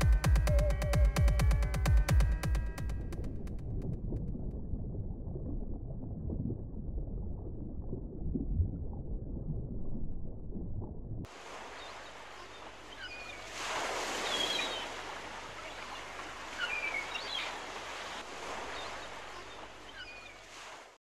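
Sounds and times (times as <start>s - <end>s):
birds chirping: 0.0s - 2.8s, 11.6s - 20.5s
ocean waves washing: 11.3s - 21.0s.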